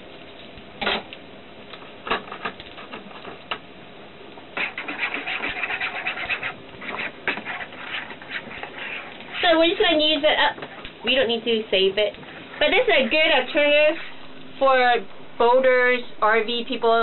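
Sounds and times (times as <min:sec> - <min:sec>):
quick stirring in a cup: 0:04.6 - 0:09.6.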